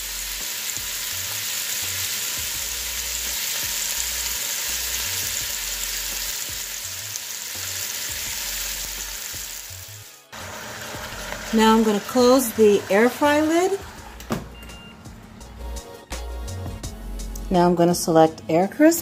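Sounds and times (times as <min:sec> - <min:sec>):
chicken sizzling in hot oil: 0:00.0 - 0:14.2.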